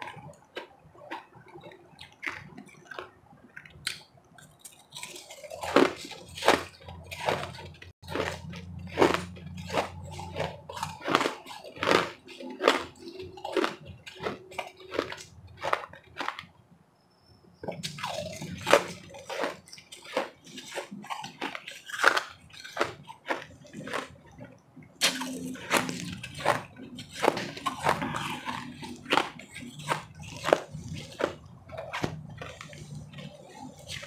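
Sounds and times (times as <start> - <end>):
chewing crushed ice: 0.0 - 16.6, 17.6 - 34.0.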